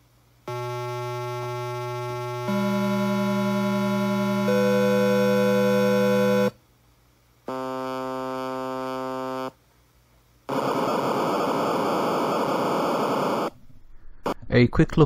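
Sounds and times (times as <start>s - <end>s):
buzzy electronic tone: 0.5s - 6.6s, 7.5s - 9.6s, 10.5s - 13.6s
three-tone electronic chord: 0.5s - 6.6s, 7.5s - 9.6s
white noise hiss: 6.6s - 13.8s.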